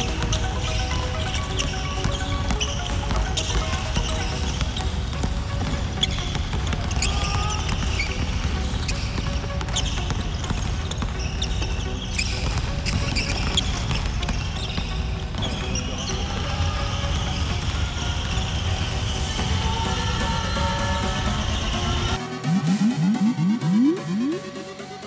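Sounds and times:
basketballs bouncing on hardwood floor: 0:00.0 - 0:19.3
electronic music with bass: 0:19.4 - 0:25.0.

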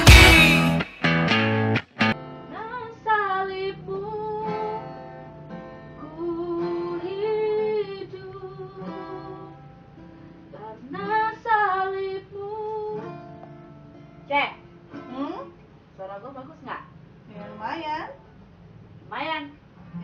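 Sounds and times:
woman singing: 0:00.0 - 0:00.9, 0:02.5 - 0:05.0, 0:06.0 - 0:09.7, 0:10.5 - 0:13.3
acoustic guitar strumming: 0:00.0 - 0:03.0, 0:04.3 - 0:07.6, 0:12.9 - 0:15.5.

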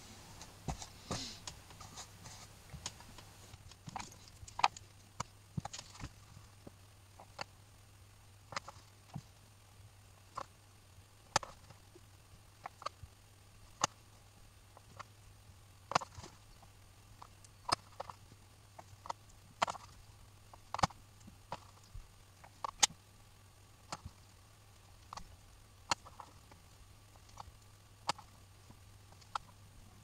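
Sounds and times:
faint low hum: 0:00.0 - 0:30.0.

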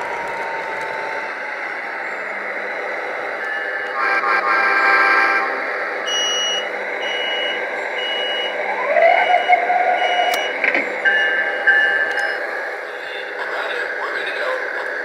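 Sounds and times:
electrical hum: 0:00.0 - 0:15.0
electronic beeping: 0:06.0 - 0:13.3.

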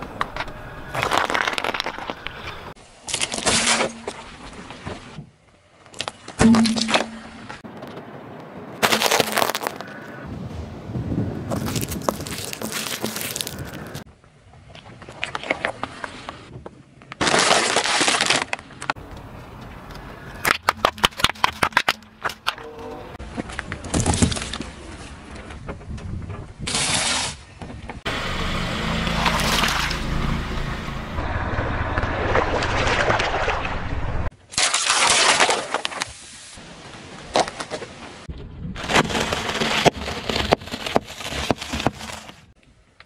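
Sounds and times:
tyre crunching small objects: 0:00.1 - 0:04.5, 0:08.8 - 0:10.2, 0:11.5 - 0:14.1, 0:17.0 - 0:24.8, 0:38.8 - 0:42.6.

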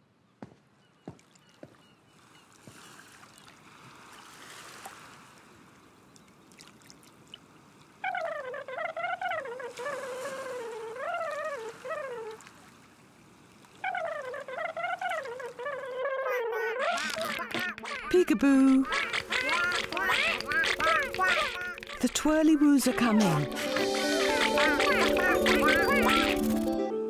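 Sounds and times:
high warbling sound: 0:18.8 - 0:26.8.

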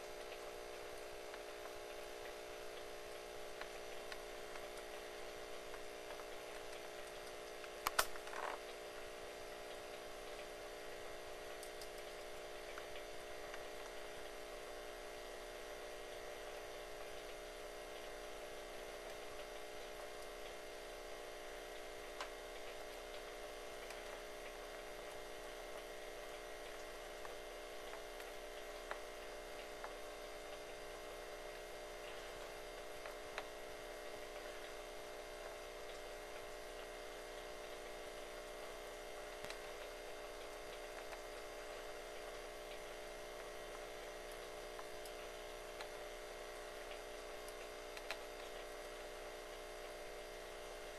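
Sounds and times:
steady hum: 0:00.0 - 0:50.9
mouse gnawing on stick: 0:06.1 - 0:08.7.

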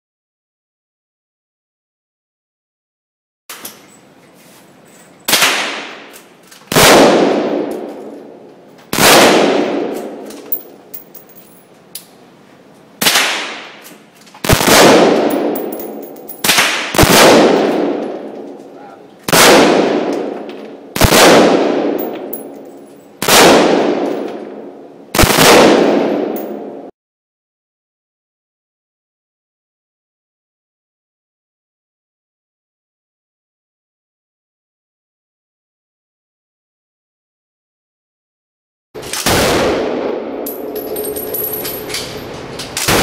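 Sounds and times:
rifle shots echoing indoors: 0:05.3 - 0:11.6, 0:13.0 - 0:13.8, 0:14.4 - 0:18.6, 0:19.3 - 0:26.9, 0:39.0 - 0:42.2, 0:42.8 - 0:43.0.

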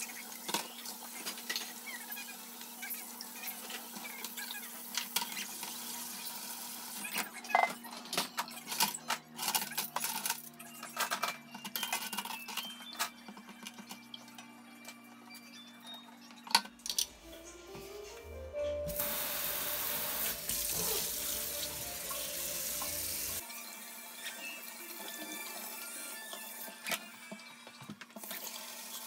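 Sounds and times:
dishes and silverware clinking: 0:07.2 - 0:14.5.

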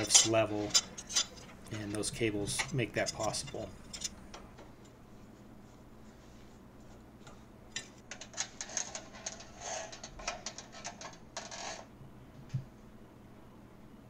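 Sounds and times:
metal cable rattling and clicking: 0:07.8 - 0:11.9.

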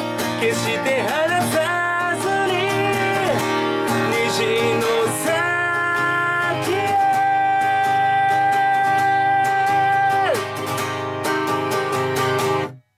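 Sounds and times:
man singing: 0:00.0 - 0:10.7
acoustic guitar strumming: 0:00.0 - 0:12.9.

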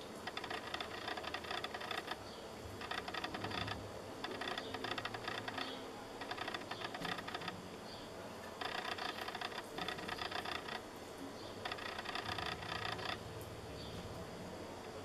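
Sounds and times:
dry crackling clicks: 0:00.0 - 0:07.6, 0:08.6 - 0:10.8, 0:11.6 - 0:13.5.

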